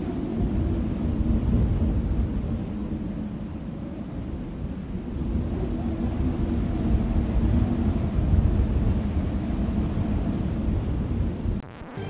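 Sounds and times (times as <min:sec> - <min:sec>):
low steady rumble: 0:00.0 - 0:11.6.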